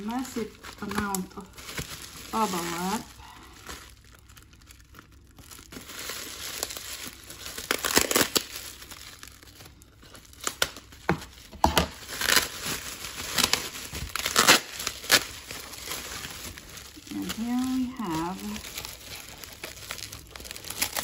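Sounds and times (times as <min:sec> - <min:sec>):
bubble wrap crinkling: 0:00.0 - 0:21.0.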